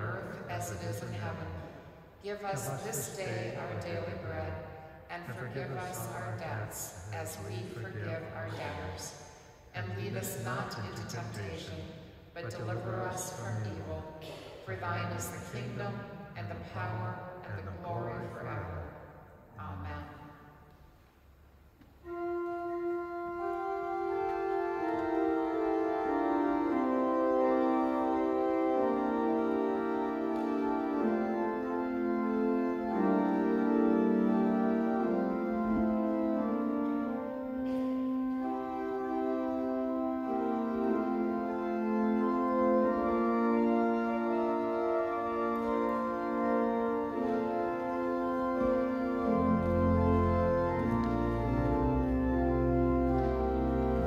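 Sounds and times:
organ chords: 0.0s - 9.1s, 9.7s - 54.0s
deep bass organ notes: 22.1s - 54.0s.

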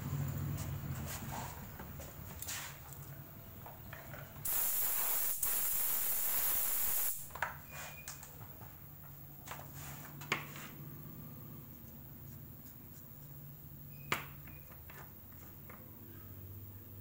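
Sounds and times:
compressed-air blow gun blasting: 4.5s - 7.3s.

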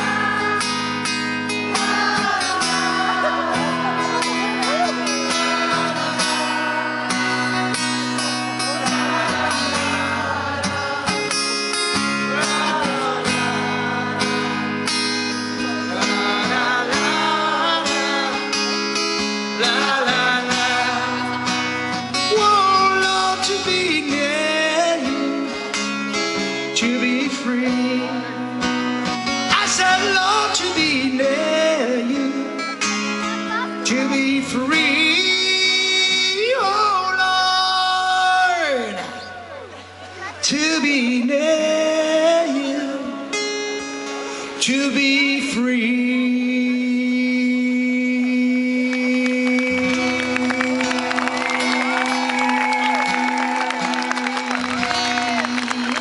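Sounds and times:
backing band playing: 0.0s - 34.6s
man singing: 0.0s - 39.4s, 40.3s - 43.6s, 44.4s - 52.3s, 54.9s - 56.0s
strummed acoustic guitar: 0.0s - 56.0s.

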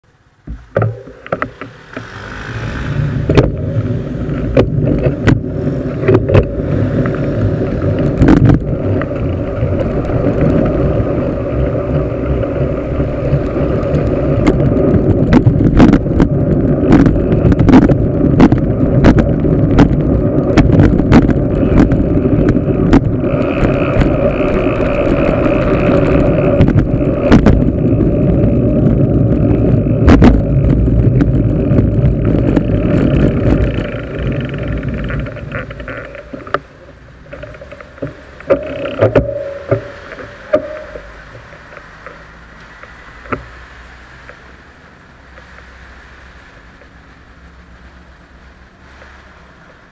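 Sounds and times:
road rumble: 0.0s - 49.9s
wind buffeting: 1.4s - 44.3s
bike rattling clicks and knocks: 3.2s - 42.2s.

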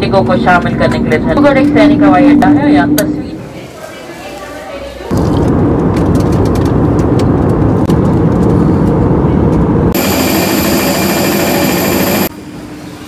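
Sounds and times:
airliner cabin rumble: 5.1s - 12.3s
jet engine hiss and whine: 5.1s - 13.0s.

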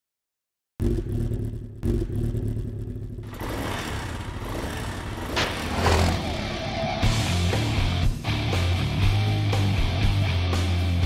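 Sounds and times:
motorcycle engine revving: 0.8s - 8.7s.

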